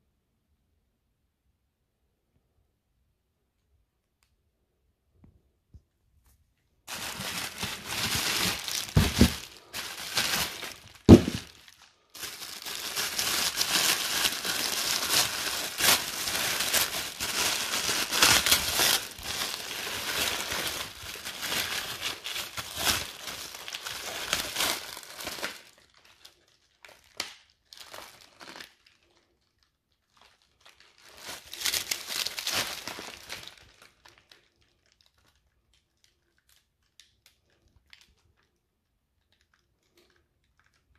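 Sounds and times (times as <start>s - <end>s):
wrapping crinkling and rustling: 6.8s - 40.9s.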